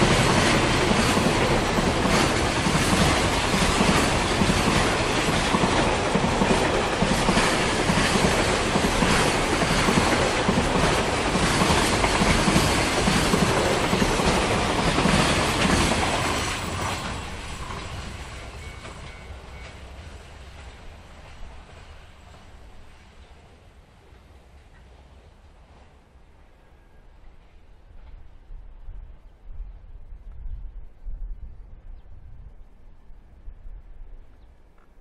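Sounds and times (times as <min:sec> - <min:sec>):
freight train wheels clattering: 0:00.0 - 0:22.9.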